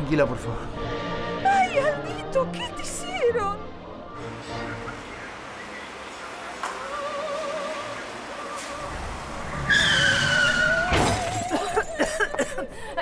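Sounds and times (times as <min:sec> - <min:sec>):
car engine rumble: 0:04.2 - 0:12.5
tyres squealing: 0:04.7 - 0:12.0.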